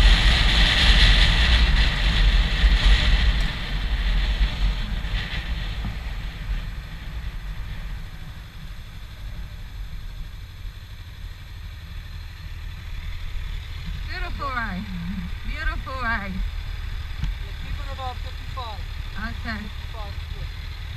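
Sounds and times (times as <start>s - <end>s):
wind rushing on microphone: 0.0s - 10.1s
motorcycle engine rumble: 0.0s - 20.9s.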